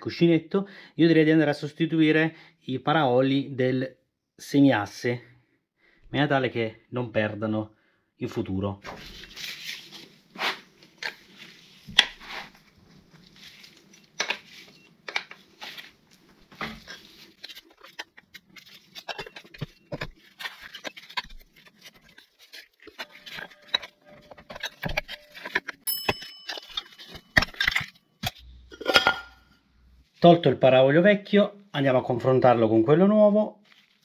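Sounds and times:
metallic ringing clink: 0:25.9 - 0:27.9.

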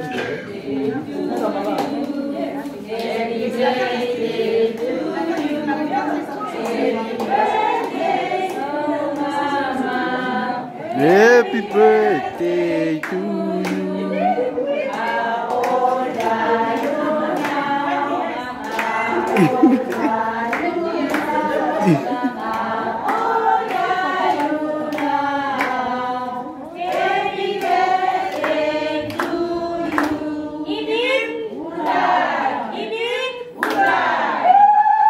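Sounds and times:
people singing together for a birthday: 0:00.0 - 0:35.0
hands clapping: 0:18.6 - 0:25.8, 0:26.9 - 0:30.2, 0:33.6 - 0:34.0.

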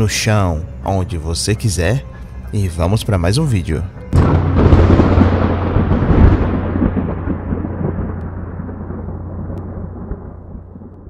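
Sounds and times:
deep thunder-like rumble: 0:04.1 - 0:11.0.

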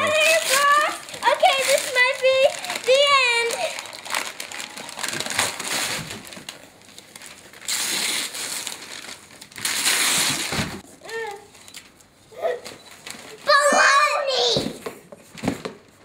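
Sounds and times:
wrapping paper tearing and crumpling: 0:00.0 - 0:11.6, 0:12.9 - 0:13.6.

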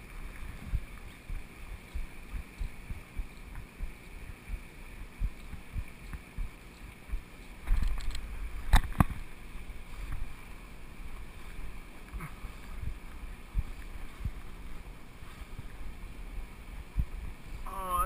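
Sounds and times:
wind rumble on microphone: 0:00.0 - 0:18.0.

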